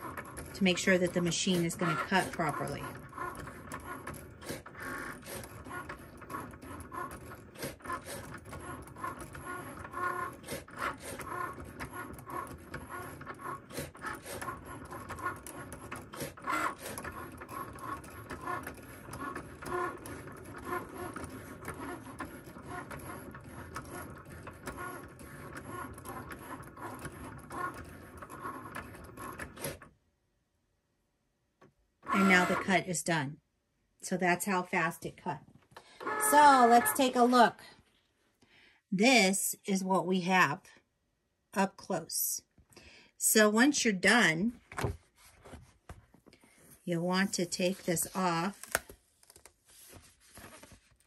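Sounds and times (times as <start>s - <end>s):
cutting machine motors running: 0.0s - 29.7s, 36.0s - 37.3s.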